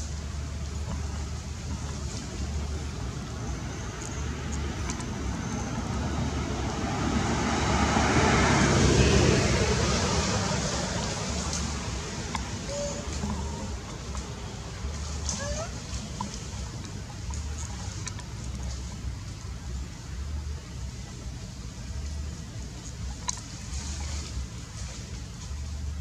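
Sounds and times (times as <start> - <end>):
motor vehicle passing by: 0.0 - 19.6, 22.8 - 26.0
low outdoor rumble: 0.0 - 26.0.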